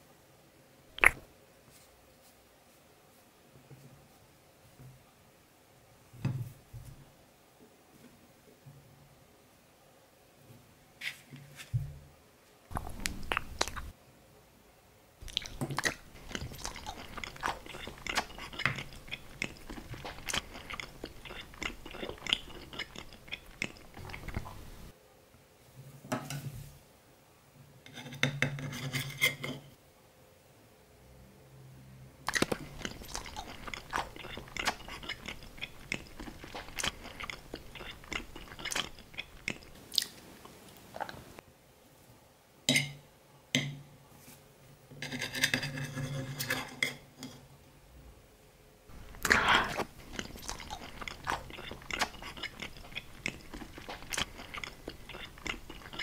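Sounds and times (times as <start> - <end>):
person chewing crunchy food: 1.0 - 1.3, 12.7 - 13.9, 15.2 - 24.9, 32.3 - 41.2, 48.9 - 56.0.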